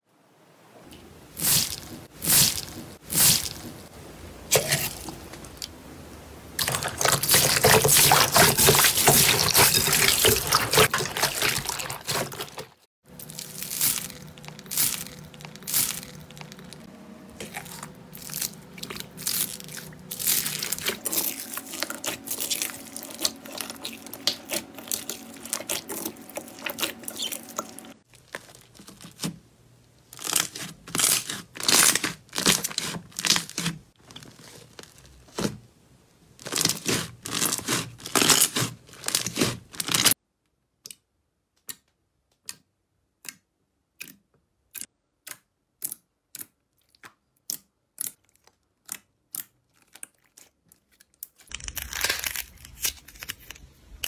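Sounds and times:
hands squeezing wet slime: 6.6 - 16.8, 17.4 - 29.3, 45.8 - 53.6.

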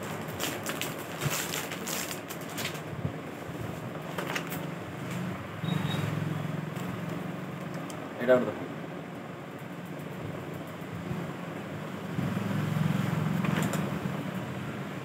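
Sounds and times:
plastic packaging crinkling: 0.0 - 2.9, 4.0 - 4.7.

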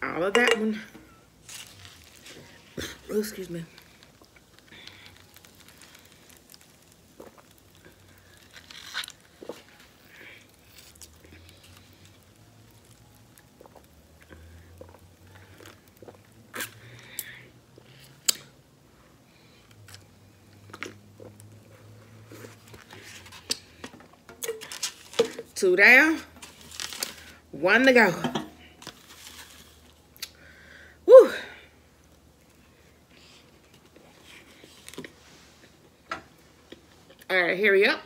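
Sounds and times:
person chewing: 3.8 - 18.5, 20.6 - 21.5.

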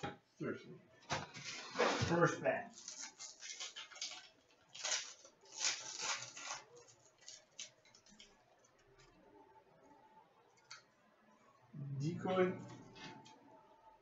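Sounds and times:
wrapper crinkling and tearing: 2.7 - 8.4.

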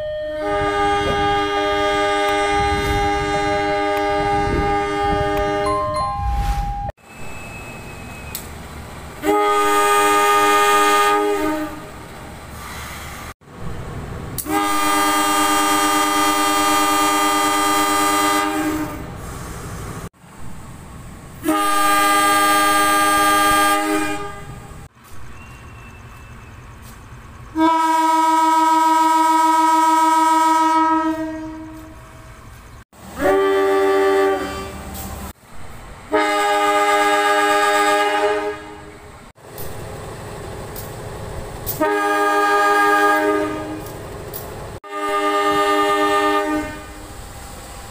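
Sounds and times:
locomotive air horn blasts: 0.0 - 7.4, 9.2 - 11.9, 14.4 - 19.4, 21.4 - 24.7, 27.5 - 32.4, 33.1 - 35.0, 36.1 - 39.0, 41.7 - 44.0, 44.8 - 47.1
train running noise: 0.0 - 47.9.

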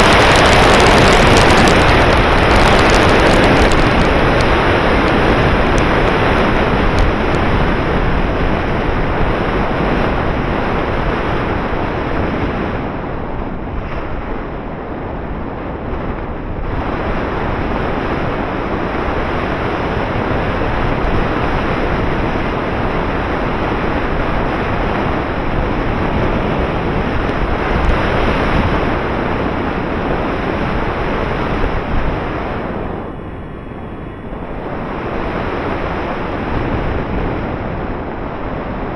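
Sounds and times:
wind rushing over microphone: 0.0 - 38.9.

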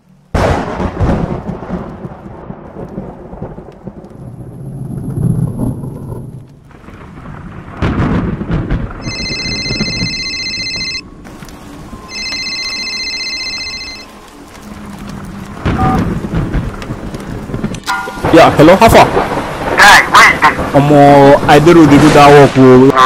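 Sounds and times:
rain: 0.0 - 23.0
thunderclap: 0.3 - 14.0, 14.6 - 23.0
mobile phone ringing: 9.0 - 11.1, 12.1 - 14.2.

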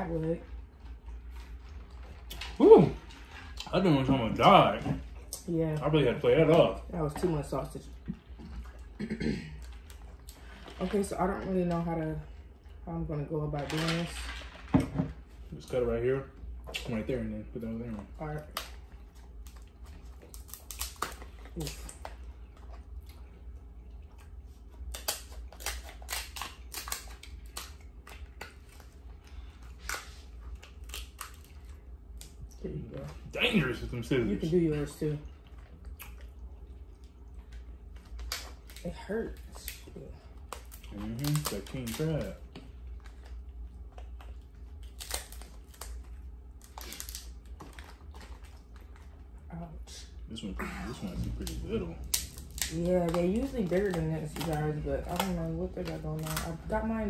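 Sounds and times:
crab shells cracking: 18.3 - 22.3, 24.3 - 32.4, 36.0 - 49.4, 51.1 - 56.8.

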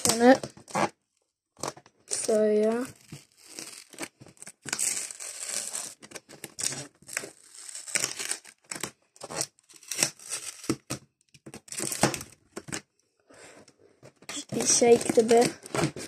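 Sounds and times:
tape ripping off cardboard: 0.0 - 1.0, 1.6 - 12.8, 14.3 - 16.0
plastic film crinkling: 2.1 - 11.0, 14.3 - 16.0.

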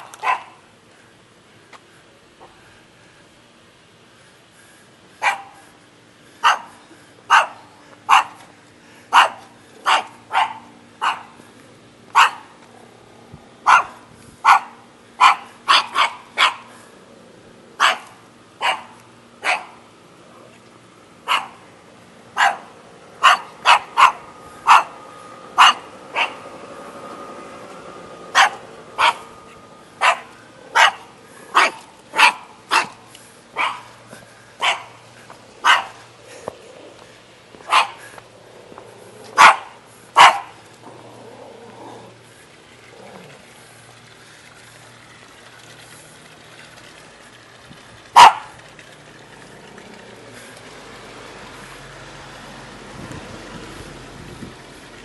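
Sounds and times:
small dog barking: 0.0 - 0.6, 5.2 - 5.6, 6.4 - 8.4, 9.1 - 11.4, 12.1 - 12.5, 13.6 - 16.7, 17.8 - 19.8, 21.2 - 21.6, 22.4 - 25.0, 25.6 - 26.4, 28.3 - 29.3, 30.0 - 33.0, 33.6 - 33.9, 34.6 - 35.0, 35.6 - 36.0, 37.6 - 38.0, 39.3 - 40.6, 48.2 - 48.5.

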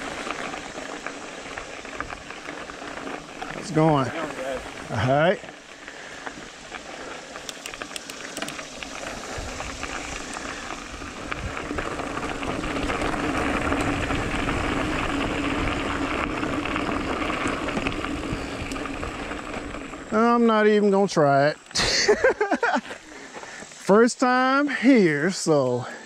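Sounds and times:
bike tyres on dirt: 0.0 - 26.0
light clicks: 7.4 - 8.7.

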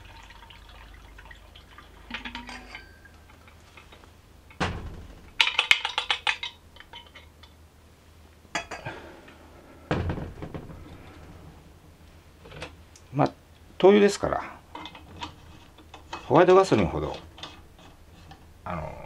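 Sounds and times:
metal knock: 2.1 - 3.0
heavy thump: 4.6 - 5.4, 9.9 - 11.0.

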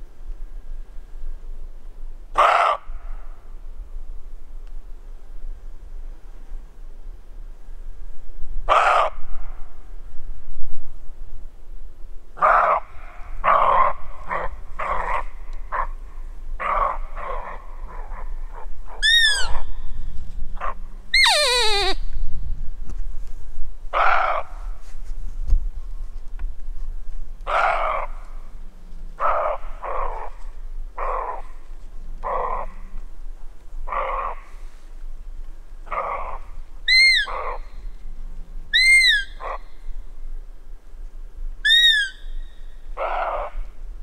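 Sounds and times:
deer barking hoarsely: 2.4 - 3.0, 8.7 - 9.2, 12.4 - 16.0, 16.6 - 19.6, 29.2 - 30.4.

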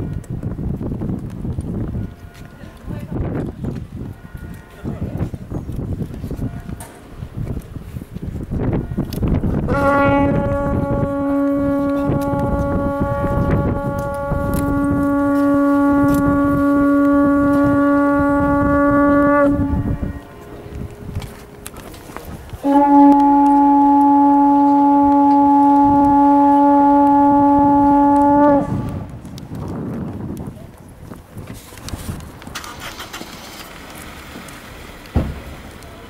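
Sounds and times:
horn blasts: 8.6 - 29.4.

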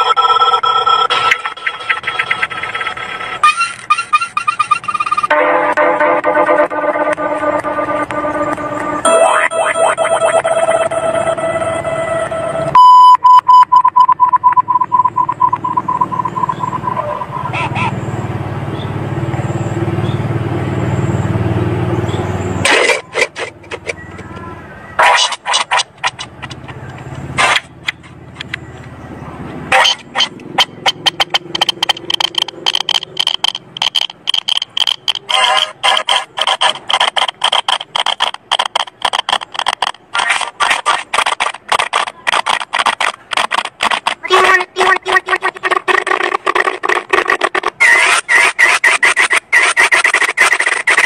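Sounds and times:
rapidly pulsing high beep: 0.0 - 5.4, 6.0 - 18.2, 29.7 - 37.2
distorted stuttering cartoon audio: 0.0 - 12.5, 15.8 - 18.0, 22.6 - 24.0, 25.0 - 26.6, 27.4 - 28.2, 29.7 - 51.0
low buzzing drone: 4.8 - 12.8.

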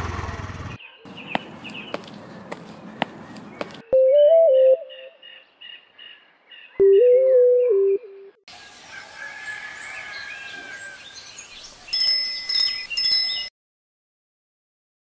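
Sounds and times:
outdoor ambience: 0.0 - 7.3, 8.5 - 13.5
birds chirping: 0.6 - 8.1, 9.8 - 13.5
bicycle bell ringing: 11.9 - 13.5.

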